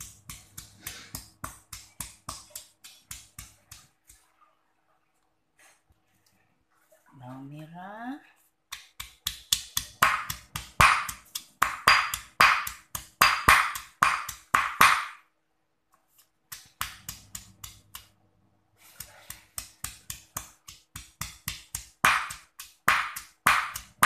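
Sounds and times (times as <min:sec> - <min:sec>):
pestle pounding in stone mortar: 0:00.0 - 0:04.1, 0:08.7 - 0:15.2, 0:19.1 - 0:24.0.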